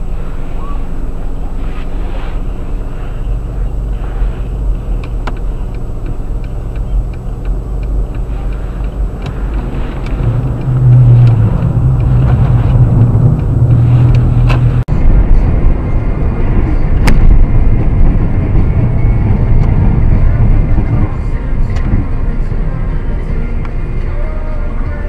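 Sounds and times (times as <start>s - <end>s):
car engine running: 0.0s - 25.0s
road noise: 0.0s - 25.0s
quick regular ticking: 4.5s - 14.8s.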